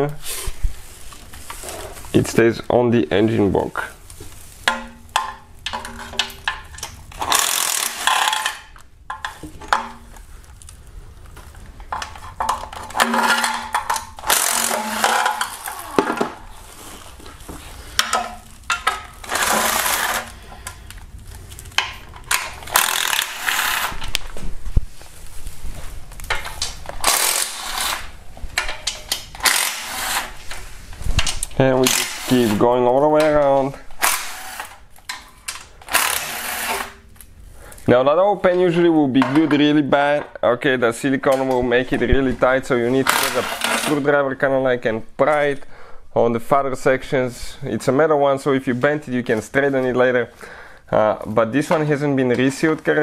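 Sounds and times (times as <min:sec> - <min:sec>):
power ratchet whirring: 0:07.2 - 0:08.4, 0:14.2 - 0:15.8, 0:19.2 - 0:20.4, 0:22.6 - 0:24.0, 0:27.0 - 0:28.1, 0:29.3 - 0:30.4, 0:31.8 - 0:32.5, 0:34.0 - 0:34.8, 0:35.8 - 0:37.0.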